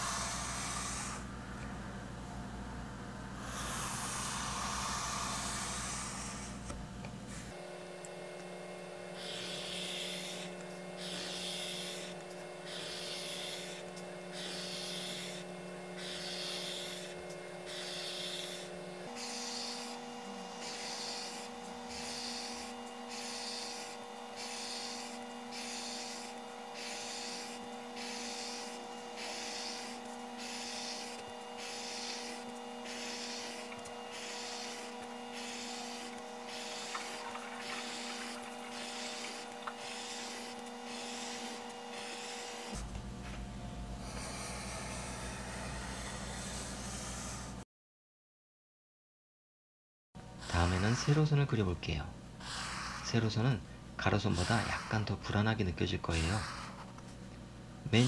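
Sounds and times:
faint steady hum: 0:00.0 - 0:47.6
pencil scratching on paper: 0:09.2 - 0:42.8, 0:44.0 - 0:47.6, 0:50.4 - 0:51.4, 0:52.4 - 0:53.3, 0:54.1 - 0:55.1, 0:56.1 - 0:56.9.

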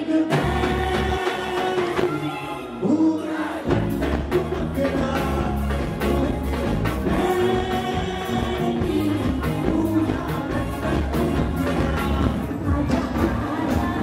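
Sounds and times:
woman singing: 0:00.0 - 0:14.0.

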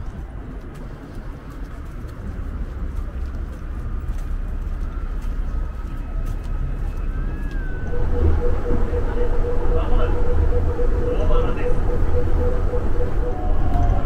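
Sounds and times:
faint footstep clicks: 0:00.0 - 0:07.9
steady low rumble: 0:00.0 - 0:14.0.

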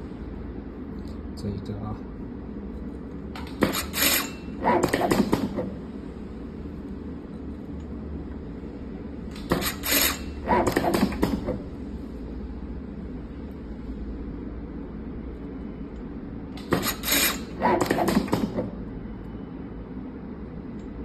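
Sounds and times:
steady low hum: 0:00.0 - 0:21.0
tape wrapping machine clattering: 0:09.3 - 0:11.5, 0:16.6 - 0:18.6.

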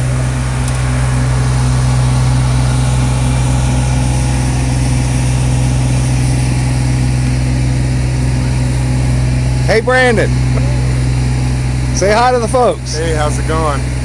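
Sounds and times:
truck engine low hum: 0:00.0 - 0:14.0.

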